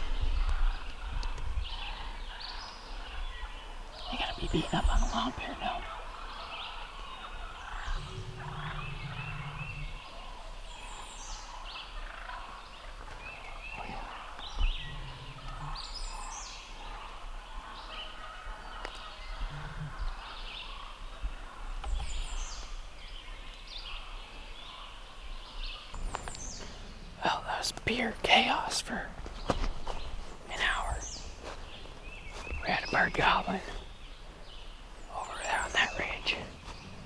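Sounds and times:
turkeys gobbling and calling: 0.0 - 27.7.

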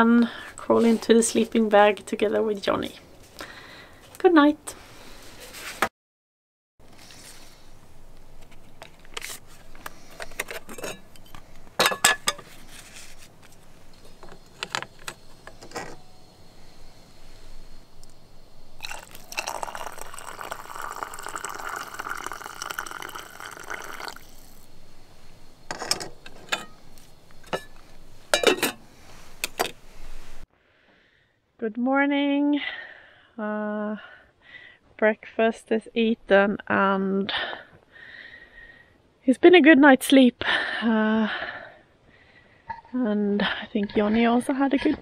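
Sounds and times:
pot and mug clinking: 10.7 - 12.4, 18.8 - 24.6, 27.4 - 28.8
water pouring into a mug: 18.8 - 24.7.

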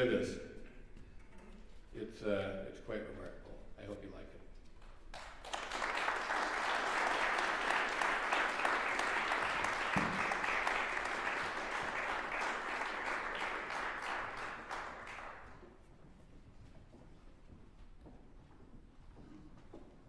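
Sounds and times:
audience applauding: 5.1 - 15.6.

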